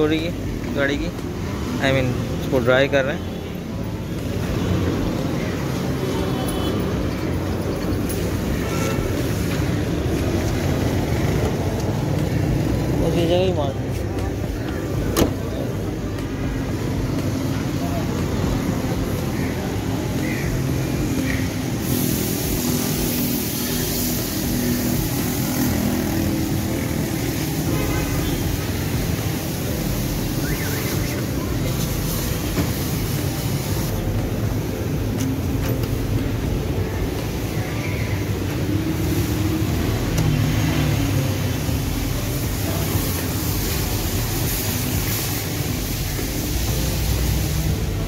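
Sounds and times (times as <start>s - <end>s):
even hiss: 18.7s - 34.8s, 37.3s - 48.0s.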